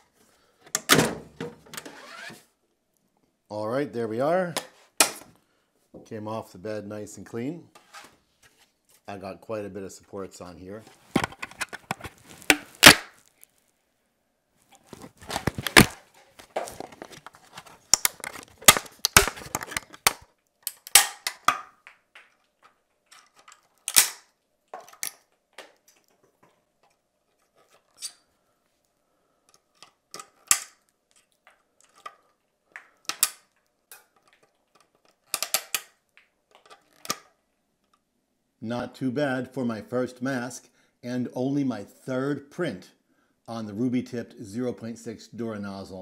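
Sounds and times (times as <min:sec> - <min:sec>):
plastic snapping and cracking: 0:11.1 - 0:13.4, 0:14.8 - 0:26.2, 0:29.8 - 0:37.3.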